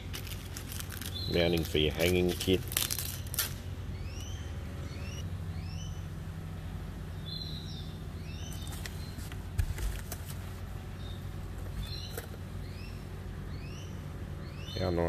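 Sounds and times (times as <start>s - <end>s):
plastic wrap crinkling: 0.0s - 3.6s
steady low hum: 0.0s - 15.0s.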